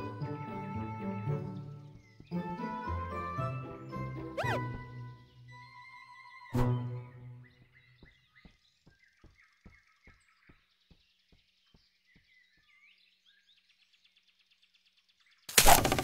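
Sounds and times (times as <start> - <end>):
faint bird chirps: 4.4 - 16.0.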